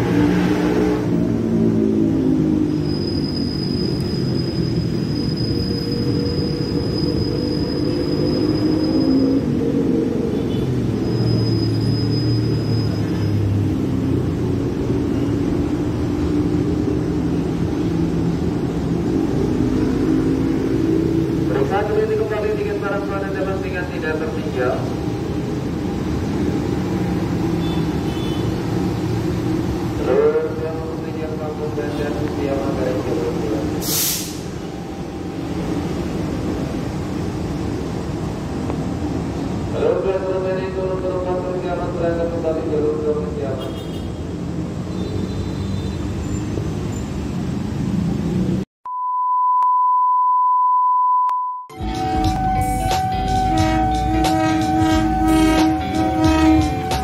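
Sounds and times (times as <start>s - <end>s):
short sharp hiss: 33.8s - 34.5s
locomotive engine rumbling: 51.7s - 57.0s.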